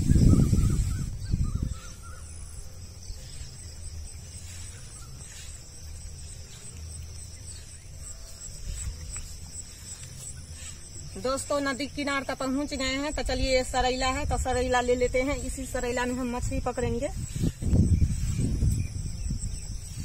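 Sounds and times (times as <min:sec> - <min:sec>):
low rumble on microphone: 0:00.0 - 0:11.3, 0:12.8 - 0:20.0
high insect drone: 0:00.0 - 0:20.0
steady low rumble: 0:12.7 - 0:20.0.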